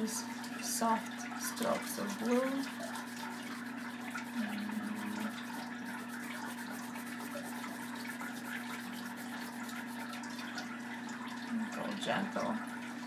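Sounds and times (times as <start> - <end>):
oil pastel rubbing on paper: 1.9 - 10.2.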